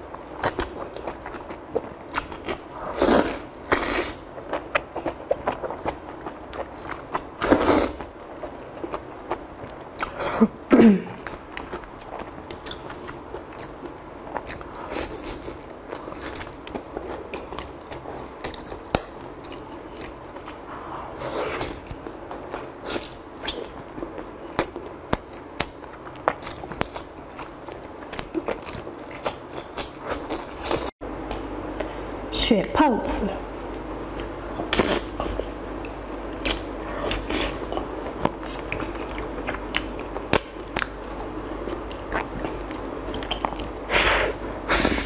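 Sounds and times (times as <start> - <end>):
chewing and biting: 34.1 - 44.6.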